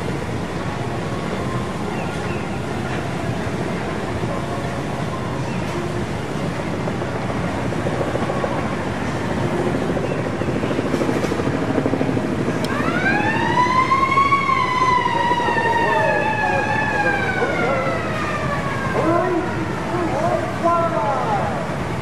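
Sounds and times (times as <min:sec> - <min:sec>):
siren wail: 0:09.5 - 0:21.8.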